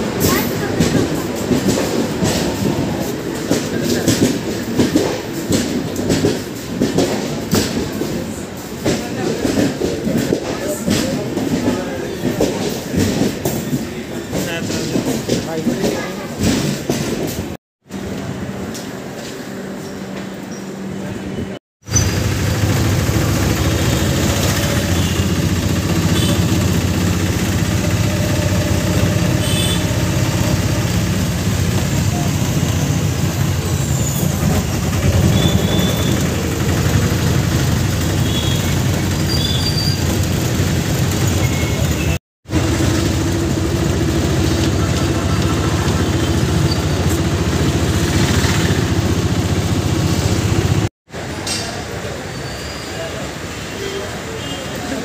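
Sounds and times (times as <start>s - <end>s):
town traffic: 0.0s - 55.0s
auto-rickshaw engine droning: 21.8s - 55.0s.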